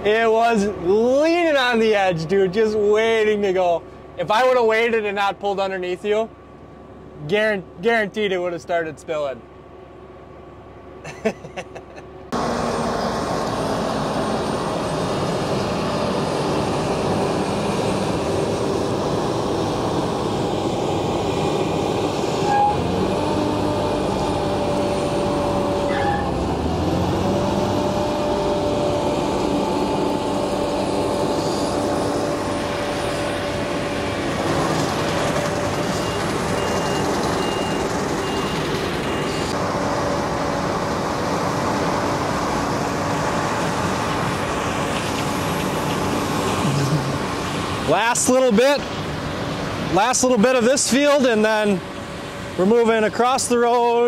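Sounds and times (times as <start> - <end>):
combine harvester engine drone: 0.0 - 54.0
short electronic beeps: 35.8 - 39.5.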